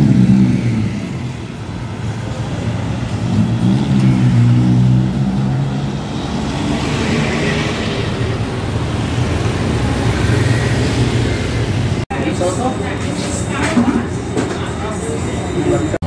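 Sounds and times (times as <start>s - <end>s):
cars and scooters passing: 0.0s - 16.0s
road noise: 0.0s - 16.0s.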